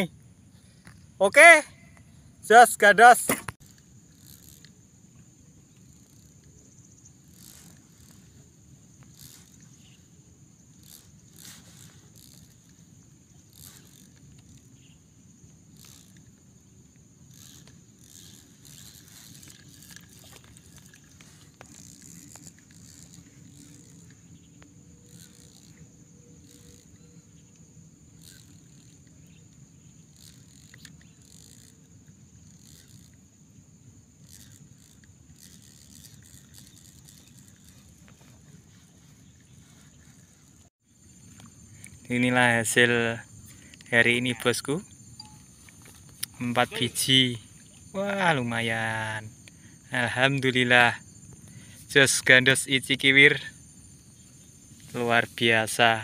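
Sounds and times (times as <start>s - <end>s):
high insect drone: 0.0s - 56.0s
handling clicks and scrapes: 3.2s - 33.2s, 34.1s - 42.0s.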